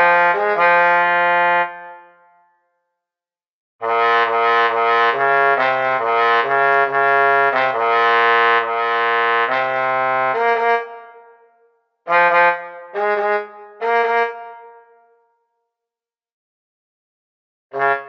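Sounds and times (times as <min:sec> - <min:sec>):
low brass quartet chords: 0:12.1 - 0:14.9.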